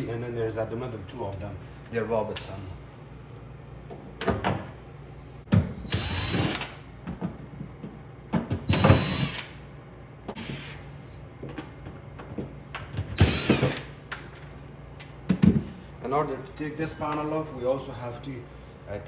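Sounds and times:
cordless drill motor spinning: 0:05.9 - 0:06.7, 0:08.7 - 0:09.6, 0:10.4 - 0:10.8.

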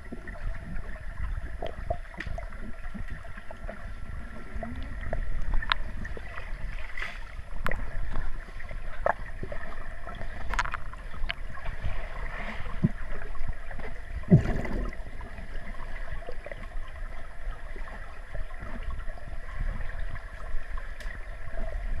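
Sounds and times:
underwater water rumble: 0:00.0 - 0:22.0
underwater clicks and knocks: 0:04.8 - 0:06.0, 0:10.4 - 0:11.4, 0:13.8 - 0:15.1.

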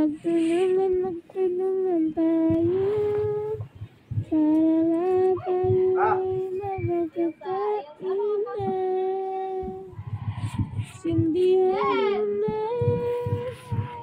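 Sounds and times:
high voice singing: 0:00.0 - 0:14.0.

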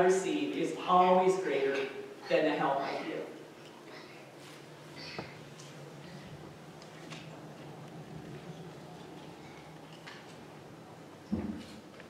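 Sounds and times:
steady low hum: 0:00.0 - 0:12.0
paper and cloth rustling: 0:04.3 - 0:10.5.

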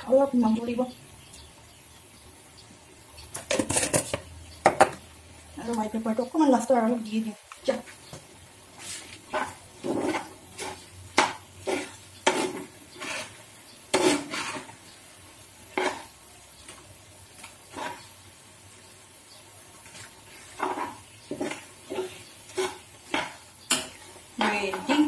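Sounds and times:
spatula scraping frying pan: 0:03.4 - 0:04.3, 0:08.7 - 0:18.4, 0:19.8 - 0:25.0.

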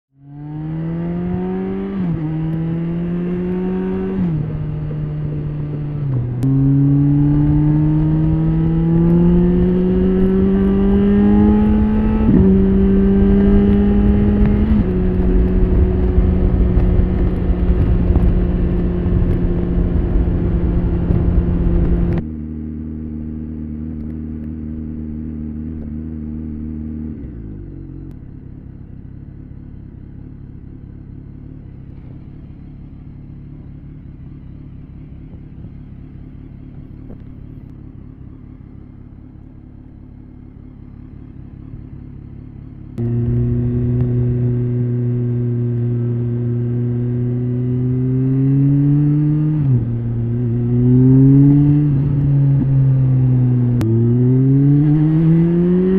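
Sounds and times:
motorcycle engine accelerating: 0:00.1 - 0:55.9
wind rushing over microphone: 0:03.8 - 0:22.2.

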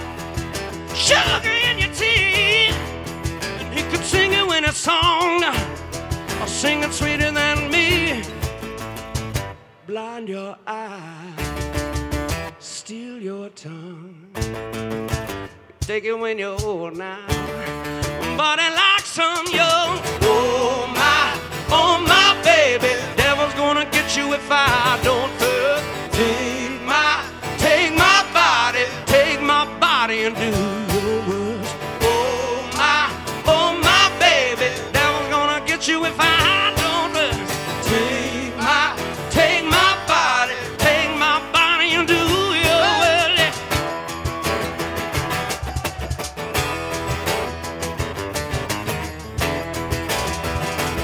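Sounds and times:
tambourine: 0:00.0 - 0:09.5, 0:19.2 - 0:51.0
drums: 0:00.0 - 0:09.6, 0:11.4 - 0:12.7, 0:14.4 - 0:51.0
live rock band playing: 0:00.0 - 0:09.8, 0:11.4 - 0:12.6, 0:14.4 - 0:51.0
acoustic and electric guitars: 0:00.0 - 0:51.0
man singing with vibrato: 0:00.9 - 0:08.4, 0:09.7 - 0:11.7, 0:12.5 - 0:14.4, 0:15.5 - 0:44.4.

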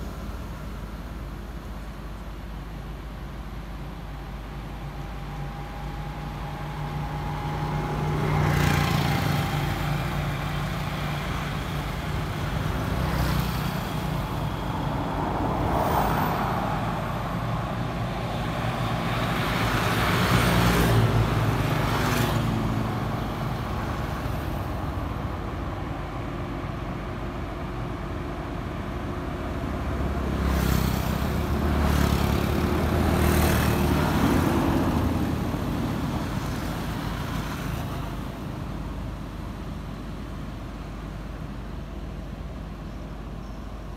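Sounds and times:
road traffic passing: 0:00.0 - 0:43.9.

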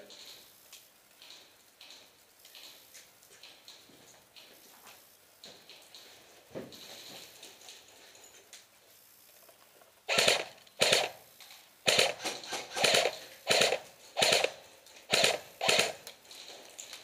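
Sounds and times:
airsoft rifle bursts: 0:10.1 - 0:16.2.

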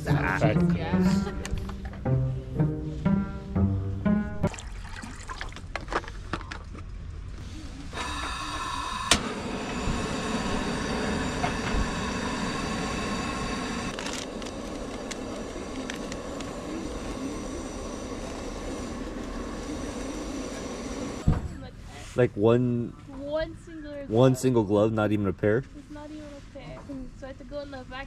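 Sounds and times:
gas hissing with whistle: 0:07.9 - 0:21.3
burner flame rushing: 0:08.8 - 0:21.3.

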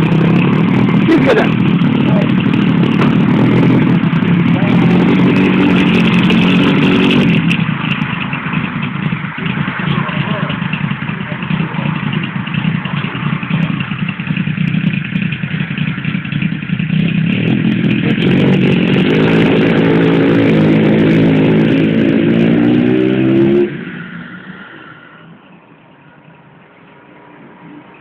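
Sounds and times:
motorcycle engine revving: 0:00.0 - 0:25.1
faint traffic noise: 0:21.2 - 0:28.0.

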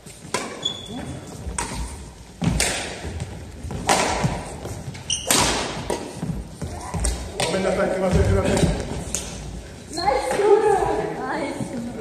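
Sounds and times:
racket striking shuttlecock: 0:00.3 - 0:00.6, 0:01.5 - 0:04.6, 0:05.2 - 0:06.4.

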